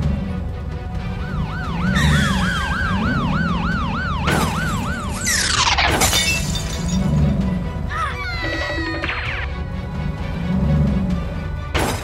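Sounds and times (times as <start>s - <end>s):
background music: 0.0s - 12.0s
police siren yelping: 1.1s - 5.9s, 8.0s - 9.6s
cars crashing: 4.2s - 7.6s
glass shattering: 5.3s - 7.2s.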